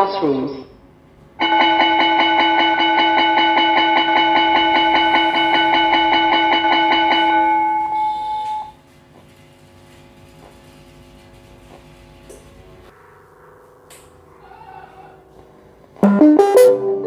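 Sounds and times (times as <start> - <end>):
electric school bell ringing: 1.4 - 8.8.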